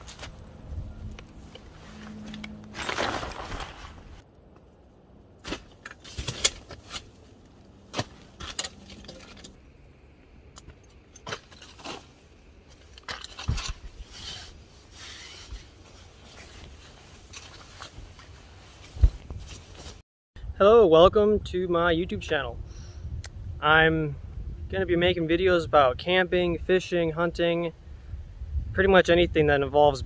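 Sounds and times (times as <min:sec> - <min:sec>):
camping gear clicks and knocks: 0:01.1 - 0:09.6, 0:10.5 - 0:14.4, 0:15.6 - 0:20.0
tent fabric rustling: 0:01.3 - 0:04.2, 0:11.5 - 0:20.0.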